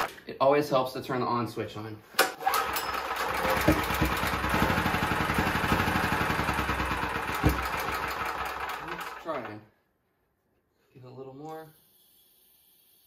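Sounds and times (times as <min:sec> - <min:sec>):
generator engine running: 0:02.4 - 0:09.5.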